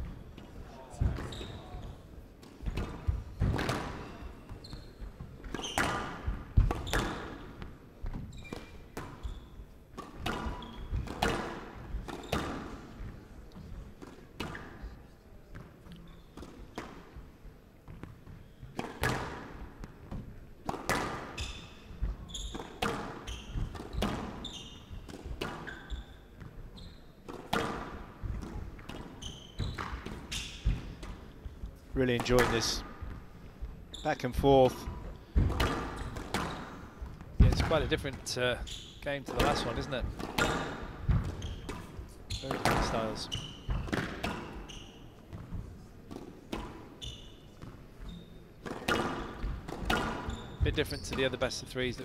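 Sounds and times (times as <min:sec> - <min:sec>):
squash ball struck by rackets: 0:02.4 - 0:04.1, 0:05.4 - 0:09.2, 0:09.9 - 0:13.1, 0:17.9 - 0:26.6, 0:27.2 - 0:31.4, 0:34.8 - 0:37.8, 0:39.3 - 0:44.6, 0:48.6 - 0:50.3.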